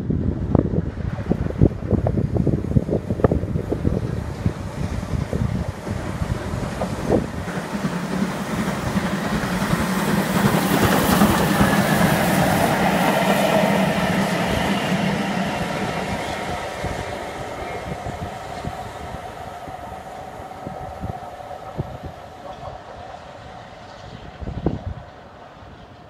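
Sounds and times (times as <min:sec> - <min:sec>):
steam train passing: 0:00.0 - 0:26.0
wheels rumbling on rail: 0:00.0 - 0:26.0.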